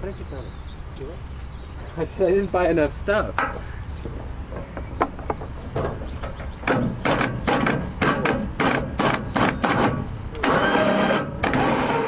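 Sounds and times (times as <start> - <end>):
rapid sharp knocks: 6.6 - 10.1.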